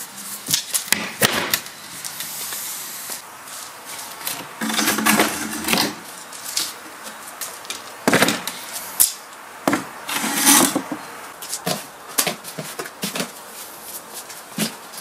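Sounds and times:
wooden table scraping and knocking: 0:04.6 - 0:06.0, 0:09.7 - 0:11.0.

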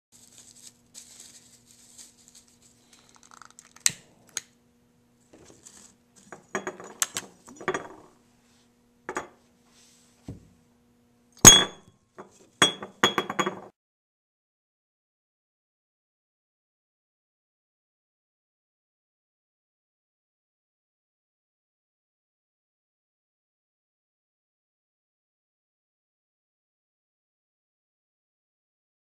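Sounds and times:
faint steady hum: 0:00.2 - 0:13.7
glass flask clinking on table: 0:06.4 - 0:08.1, 0:09.1 - 0:09.4, 0:11.4 - 0:13.7.

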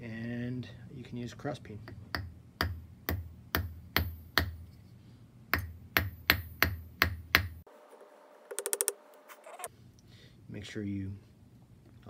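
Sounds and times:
hammer striking wire on anvil: 0:01.9 - 0:04.7, 0:05.5 - 0:07.6.

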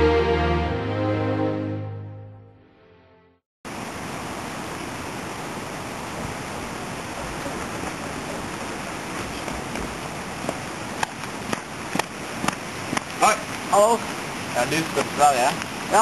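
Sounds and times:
music: 0:00.0 - 0:03.4
steady rushing outdoor noise: 0:03.7 - 0:16.0.

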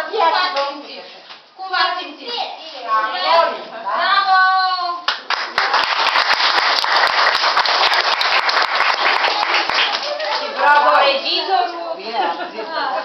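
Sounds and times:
audience applauding: 0:05.1 - 0:10.6.

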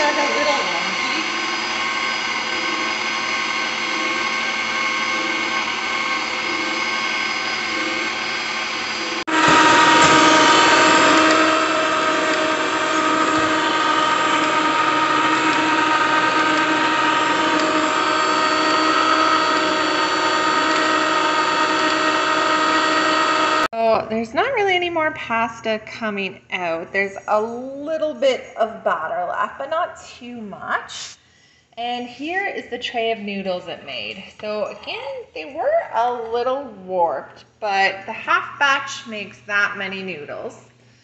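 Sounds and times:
pasta maker motor whining: 0:00.0 - 0:23.9.

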